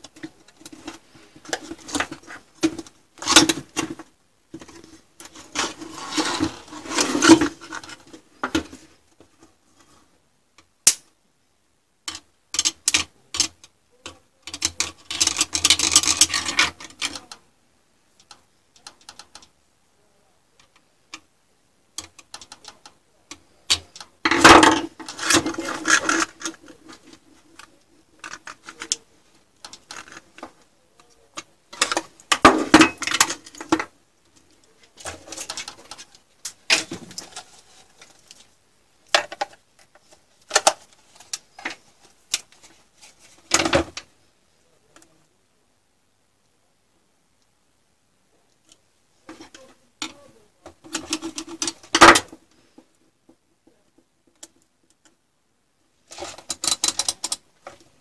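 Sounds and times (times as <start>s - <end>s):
metal parts scraping and clicking: 14.5s - 17.3s, 22.0s - 29.1s, 29.7s - 30.5s, 56.1s - 57.8s.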